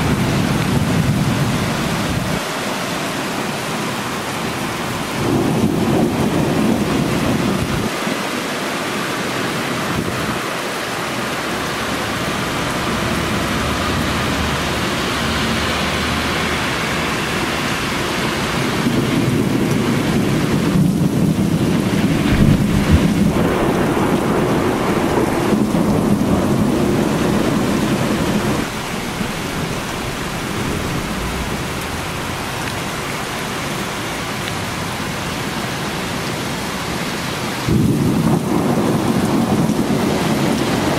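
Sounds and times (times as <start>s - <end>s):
heavy rain pouring: 0.0s - 40.9s
low rumble of thunder: 5.0s - 8.0s, 18.1s - 33.8s, 37.6s - 40.9s.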